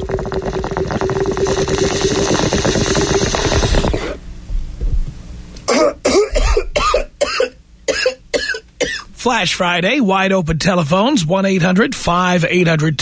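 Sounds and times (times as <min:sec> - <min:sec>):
water bubbling through a bong: 0:00.0 - 0:04.2
steady hum: 0:00.0 - 0:13.0
person coughing: 0:05.6 - 0:09.1.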